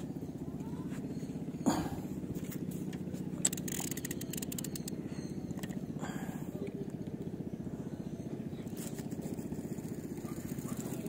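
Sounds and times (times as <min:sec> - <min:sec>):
boat engine running: 0:00.0 - 0:11.0
small clicks: 0:03.4 - 0:05.0.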